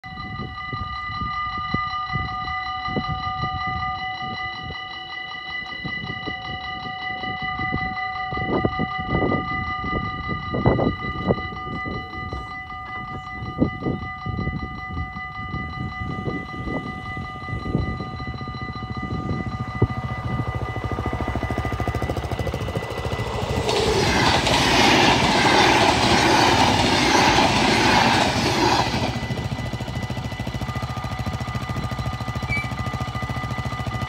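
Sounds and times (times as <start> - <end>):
gusty low rumble: 13.5 - 31.6.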